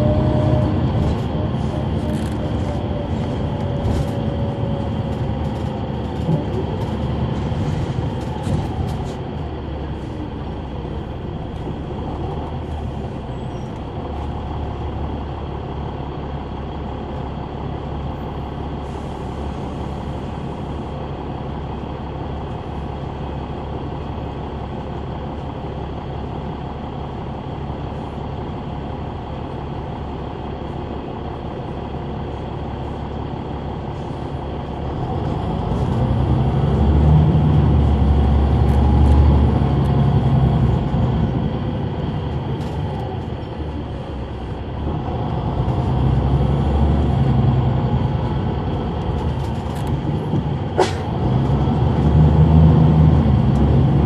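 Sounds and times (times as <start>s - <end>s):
bus diesel engine running: 0.0s - 54.0s.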